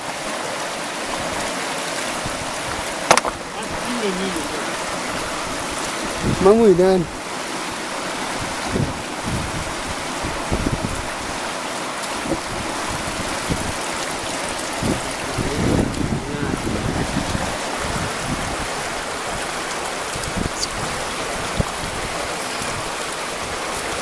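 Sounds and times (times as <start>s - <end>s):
river rushing: 0.0s - 24.0s
wind knocking on microphone: 2.2s - 3.5s, 6.1s - 7.0s, 8.6s - 11.0s, 14.8s - 18.7s.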